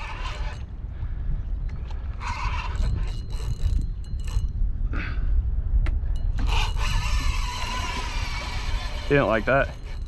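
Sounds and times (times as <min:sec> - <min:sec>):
fishing reel clicking and whirring: 0:00.0 - 0:00.7, 0:02.1 - 0:04.6, 0:06.2 - 0:10.0
wind rumble on microphone: 0:00.0 - 0:10.0.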